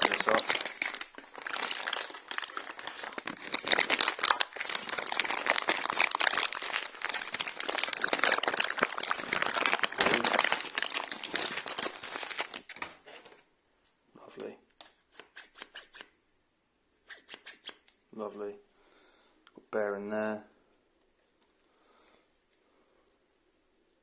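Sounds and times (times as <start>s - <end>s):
plastic packaging crinkling: 0.0s - 13.4s.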